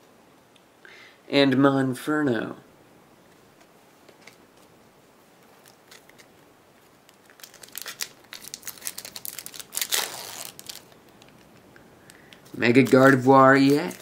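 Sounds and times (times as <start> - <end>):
card pack wrapper crinkling and tearing: 5.6 - 6.3, 7.0 - 14.0.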